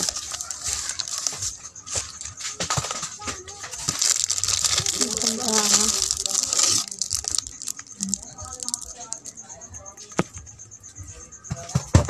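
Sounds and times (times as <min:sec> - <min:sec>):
packages knocking together: 0:00.0 - 0:09.3
plastic wrappers rustling: 0:00.0 - 0:09.4.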